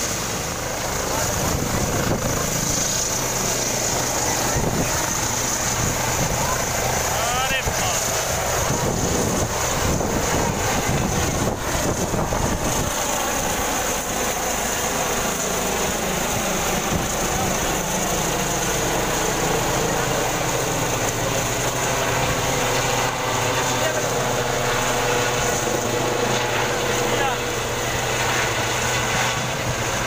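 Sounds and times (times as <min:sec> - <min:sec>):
helicopter rotor and engine: 0:00.0 - 0:30.0.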